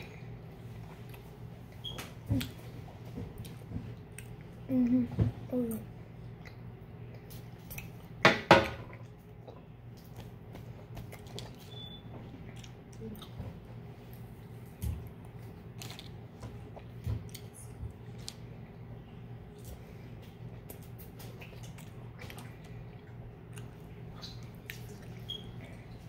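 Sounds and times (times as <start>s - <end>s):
faint steady hum: 0.0s - 26.0s
wet chewing: 9.0s - 18.8s, 19.5s - 26.0s.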